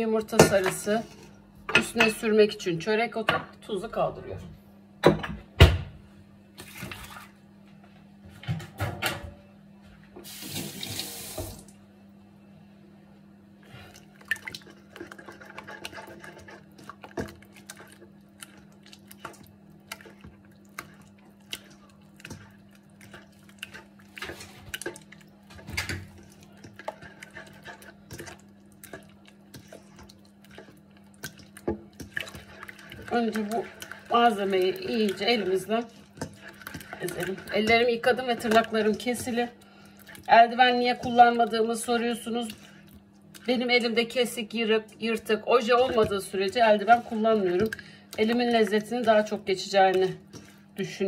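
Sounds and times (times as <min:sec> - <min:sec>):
hand squelching wet mix in bowl: 0:13.7 - 0:51.0.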